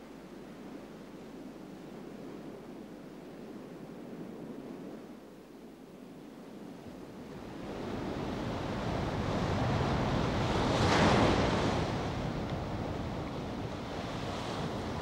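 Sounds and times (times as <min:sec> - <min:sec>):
sea surf breaking on beach: 0:07.9 - 0:15.0.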